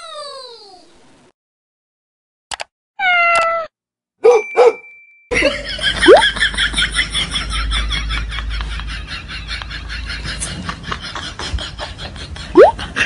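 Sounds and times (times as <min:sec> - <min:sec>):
cartoon cat meow: 0:03.0 - 0:03.7.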